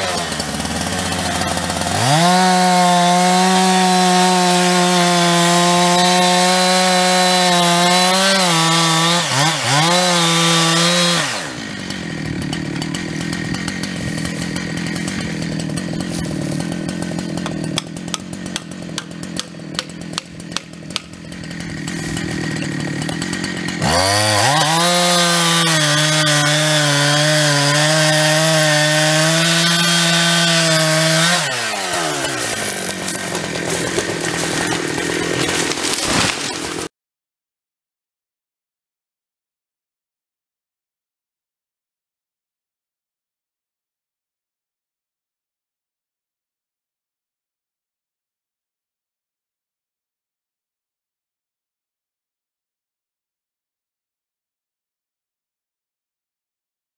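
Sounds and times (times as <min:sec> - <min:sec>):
chainsaw cutting and idling: 0:00.0 - 0:36.9.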